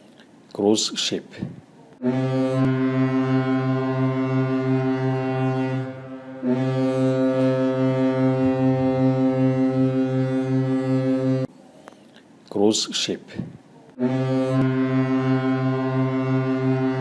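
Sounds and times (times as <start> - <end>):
ship's horn blasts: 2.0 - 11.5, 14.0 - 17.0.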